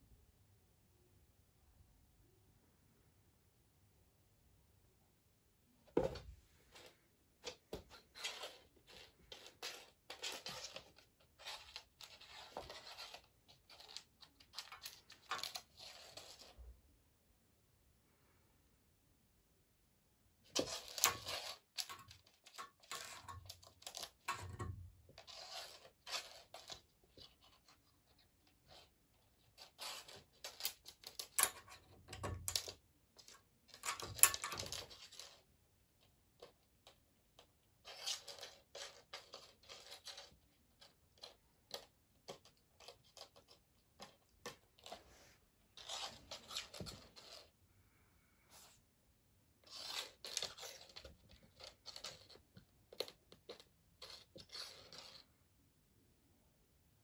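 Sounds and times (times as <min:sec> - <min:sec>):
soft paw scrapes: 0:06.6 - 0:16.6, 0:42.8 - 0:47.6, 0:48.4 - 0:48.9, 0:49.6 - 0:52.4.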